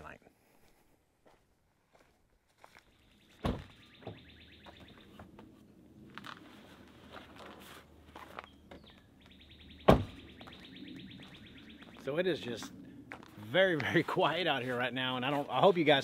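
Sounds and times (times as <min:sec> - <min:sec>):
bird calling in dry trill: 0:02.8 - 0:05.2, 0:08.4 - 0:12.2
truck door shutting: 0:03.4 - 0:04.2, 0:09.8 - 0:10.2.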